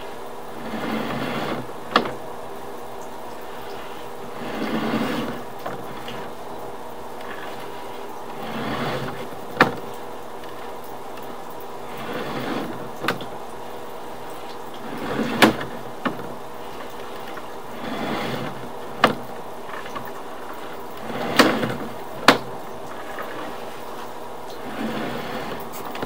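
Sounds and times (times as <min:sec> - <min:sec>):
cable rubbing in pipe: 0:00.0 - 0:02.3, 0:03.2 - 0:26.0
sharp clicks and knocks: 0:00.7 - 0:02.2, 0:07.2 - 0:13.4, 0:14.5 - 0:26.0.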